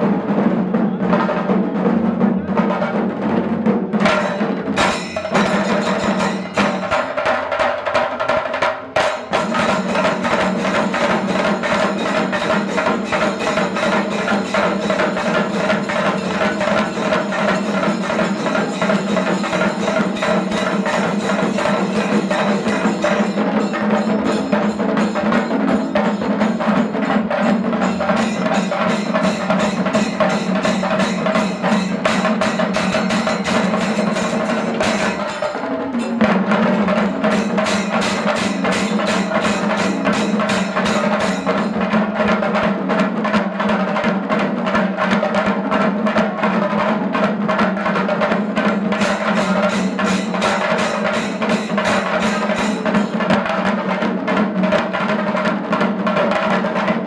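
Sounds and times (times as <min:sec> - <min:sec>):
drums beaten with sticks: 0:00.0 - 0:57.0.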